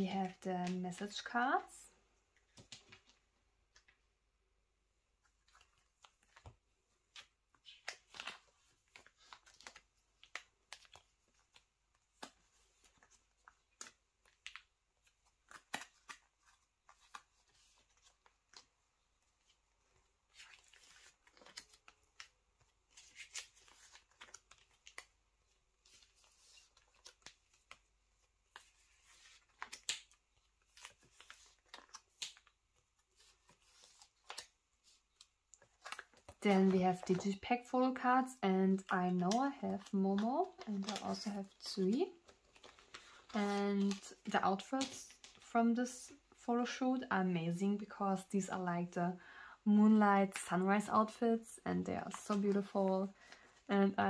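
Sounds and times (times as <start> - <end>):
plastic sleeves rustling: 0.0 - 4.2, 4.9 - 46.8, 50.1 - 54.0.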